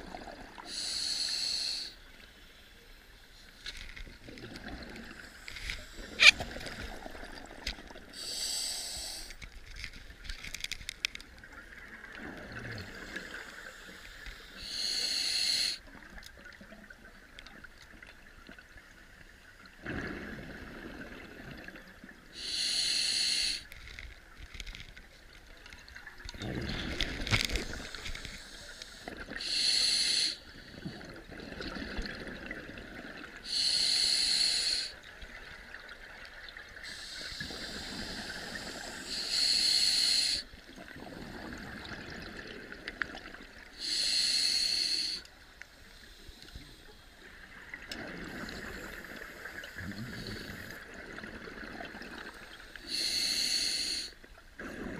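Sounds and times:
hissing regulator breaths: 0:00.7 - 0:02.0, 0:08.2 - 0:09.5, 0:13.1 - 0:15.8, 0:22.4 - 0:23.8, 0:27.3 - 0:30.5, 0:33.4 - 0:35.0, 0:36.8 - 0:40.5, 0:43.8 - 0:45.3, 0:52.7 - 0:54.2.

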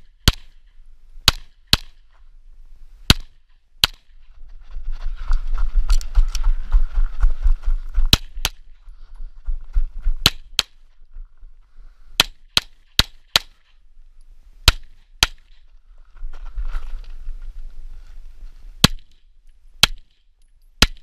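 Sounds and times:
footsteps on gravel: 0:04.2 - 0:11.6, 0:15.9 - 0:18.6.

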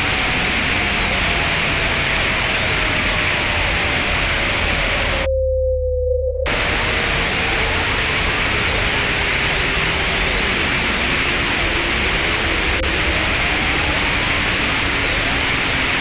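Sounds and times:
constant high whine: 0:00.0 - 0:16.0
low hum: 0:03.5 - 0:08.4
slowly gliding electronic tones: 0:04.6 - 0:08.6
steady mid-pitched tone: 0:05.2 - 0:07.3.

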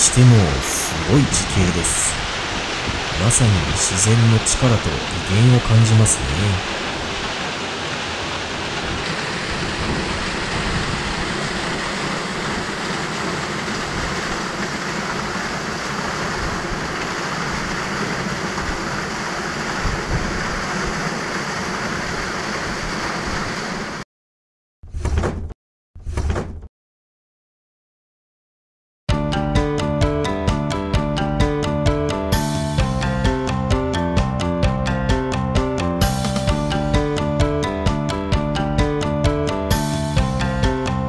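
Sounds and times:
waterfall roaring: 0:00.0 - 0:24.0.

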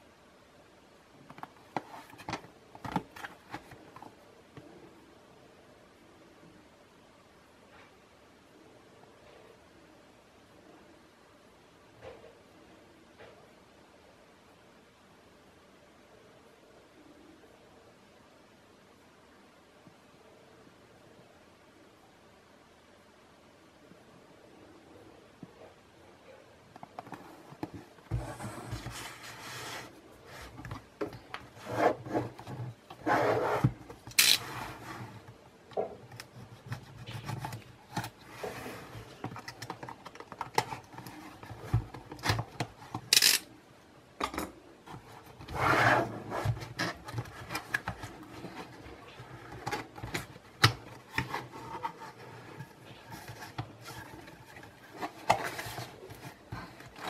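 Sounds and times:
cardboard scraping: 0:27.0 - 0:35.3, 0:36.3 - 0:39.2, 0:44.9 - 0:57.0.

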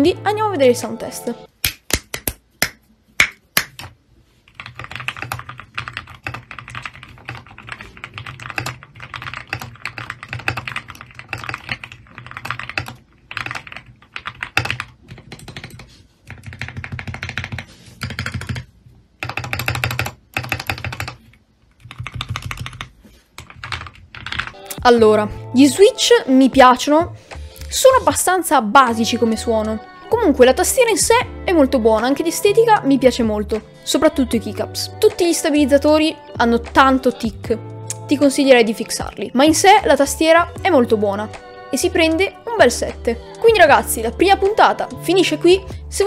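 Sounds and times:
mechanical keyboard typing: 0:03.6 - 0:24.6.

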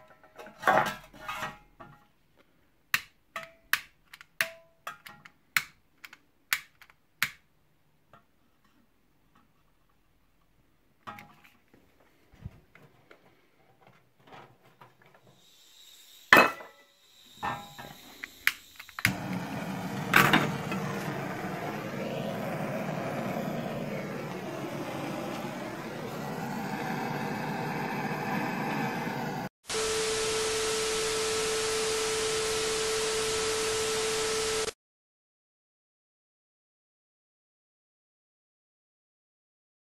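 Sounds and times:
blowtorch hissing: 0:15.4 - 0:34.7.

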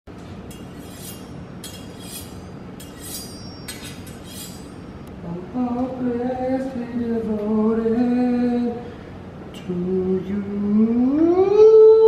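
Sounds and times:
knife scraping on honing steel: 0:00.4 - 0:05.1.

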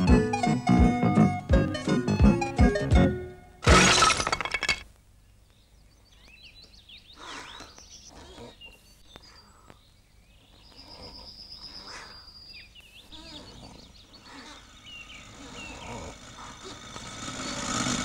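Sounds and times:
crash: 0:03.6 - 0:04.8
birds chirping and twittering: 0:05.2 - 0:18.0.

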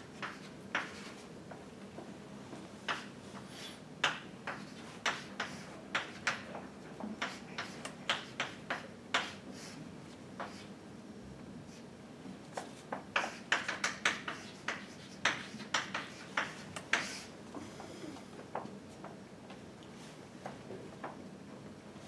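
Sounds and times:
faint steady hum: 0:00.0 - 0:22.0.

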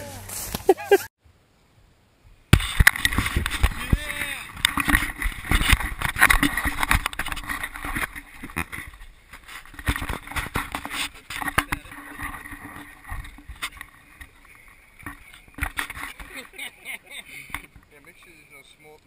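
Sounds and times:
footsteps through long grass: 0:00.0 - 0:01.1.

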